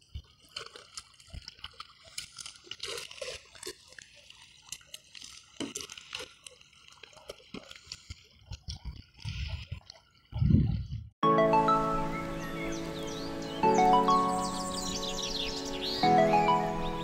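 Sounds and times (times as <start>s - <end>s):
water splashing and dripping: 0.0s - 11.1s.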